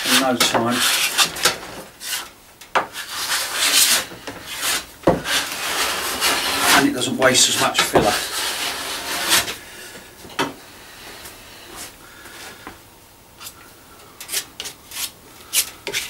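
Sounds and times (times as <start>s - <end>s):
spreader making sharp scrapes: 0.0s - 2.3s, 2.9s - 9.6s, 14.2s - 16.0s
filler knife scraping wood: 0.0s - 9.6s, 14.2s - 16.0s.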